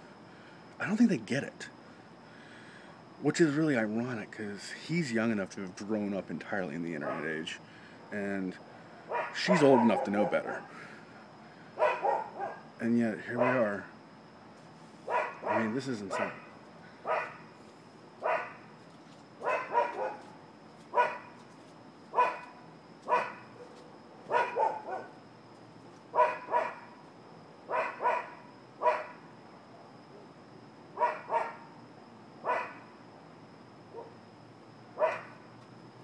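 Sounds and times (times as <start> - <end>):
dog barking: 7.0 - 7.3, 9.1 - 10.7, 11.8 - 12.7, 13.4 - 13.7, 15.1 - 17.4, 18.2 - 18.6, 19.4 - 20.3, 21.0 - 21.4, 22.1 - 22.5, 23.1 - 25.2, 26.2 - 26.9, 27.7 - 29.2, 31.0 - 31.7, 32.4 - 32.9, 35.0 - 35.4.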